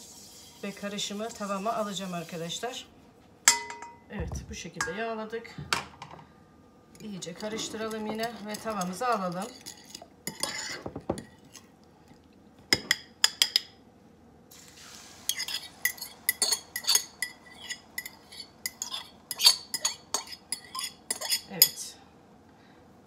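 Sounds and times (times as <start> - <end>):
fork scraping ceramic bowl: 7.2 - 11.7, 15.3 - 21.8.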